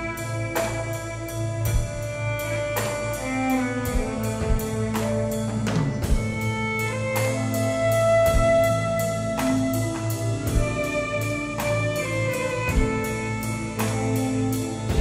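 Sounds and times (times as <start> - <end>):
drum accents: 0.0 - 15.0
live rock band playing: 0.0 - 15.0.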